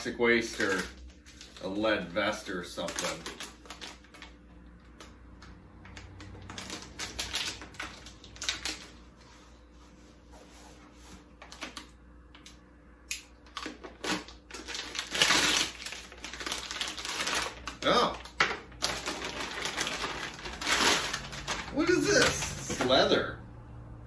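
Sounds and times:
foil bag crackling and rustling: 0:00.0 - 0:05.2, 0:06.0 - 0:09.3, 0:13.5 - 0:23.1.

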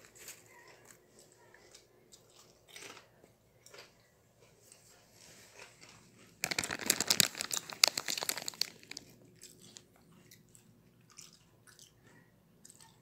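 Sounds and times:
potato chips crunching: 0:05.6 - 0:09.8.

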